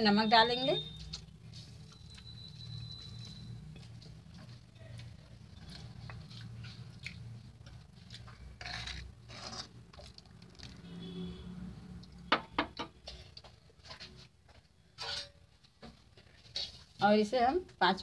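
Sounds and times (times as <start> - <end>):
spoon stirring wet gravy: 0.8 - 10.8, 13.0 - 17.0.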